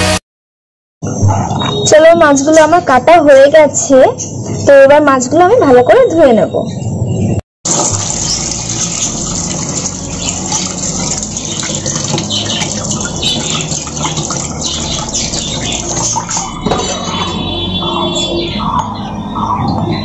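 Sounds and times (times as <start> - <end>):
hands rinsing fish in water: 7.7 - 17.0
tap water running into steel bowl: 7.7 - 17.3.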